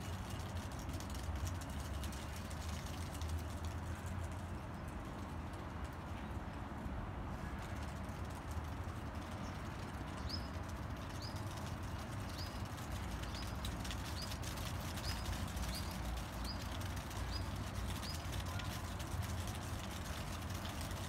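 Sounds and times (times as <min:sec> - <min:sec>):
small bird chirping: 0:12.2 - 0:18.8.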